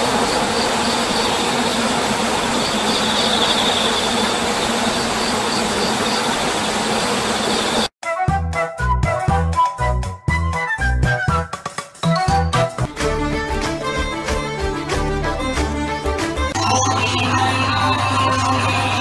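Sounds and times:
music with steady beat: 0:08.0 - 0:16.5.

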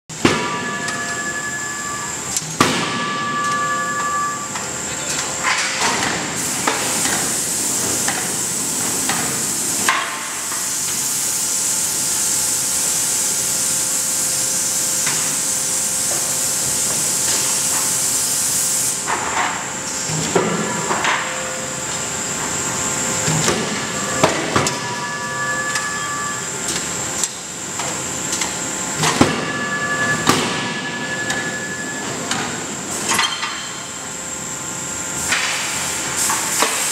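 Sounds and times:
faint machine whine: 0:00.3 - 0:06.4, 0:19.1 - 0:35.2.

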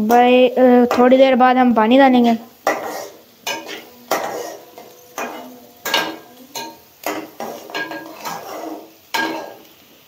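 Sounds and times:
metal spatula scraping a pot: 0:02.6 - 0:09.7.

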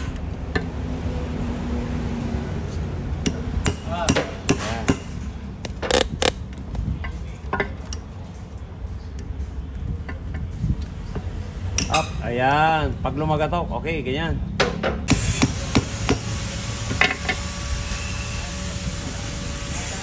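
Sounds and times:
hammer tapping on metal: 0:03.2 - 0:05.8.

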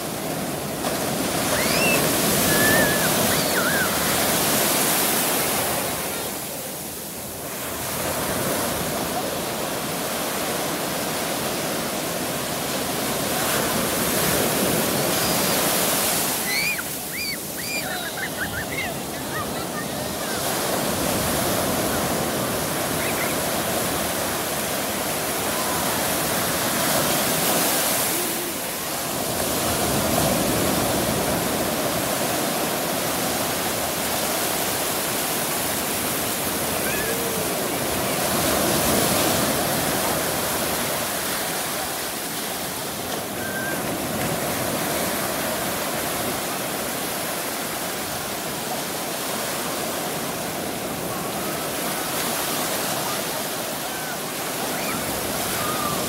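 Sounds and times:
ocean surf breaking: 0:00.0 - 0:56.0.

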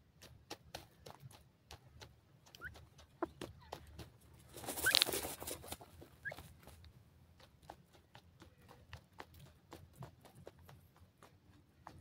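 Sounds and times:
birds scratching in dry soil: 0:00.0 - 0:12.0
feathers rustling in dirt: 0:03.8 - 0:06.9.

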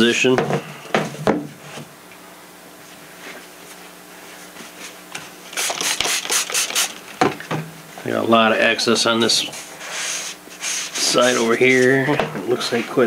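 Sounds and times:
faint steady hum: 0:00.0 - 0:13.0
paper towel rustling: 0:09.4 - 0:13.0.

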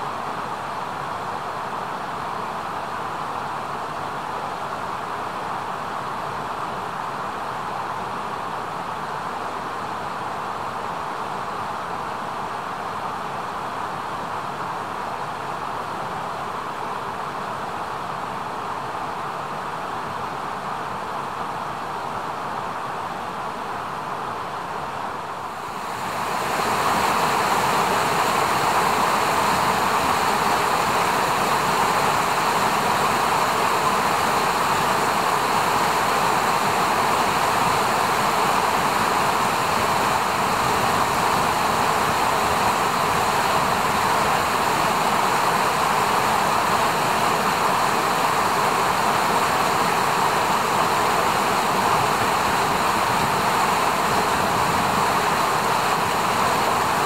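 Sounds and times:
river rushing over rocks: 0:25.0 - 0:57.0.

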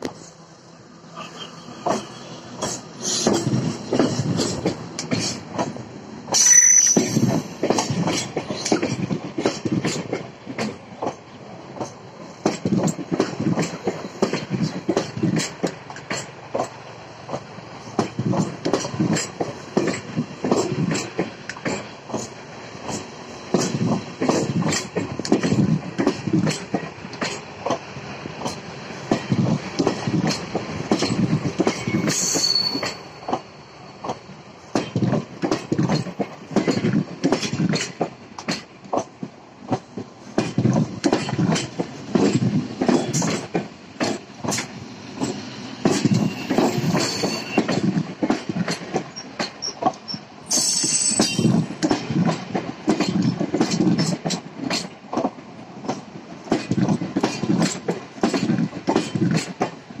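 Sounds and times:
train wheels clattering: 0:01.3 - 1:00.0
high wheel squeals: 0:06.4 - 0:07.3, 0:31.8 - 0:33.3, 0:46.0 - 0:47.8, 0:49.1 - 0:51.6
sharp wheel screech: 0:06.4 - 0:07.3, 0:31.8 - 0:33.2, 0:46.0 - 0:47.7, 0:49.6 - 0:51.5.

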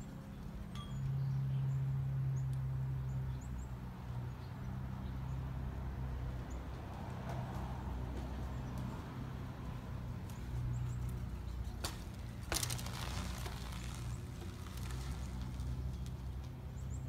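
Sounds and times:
bike wheels knocking onto asphalt: 0:11.8 - 0:16.2.

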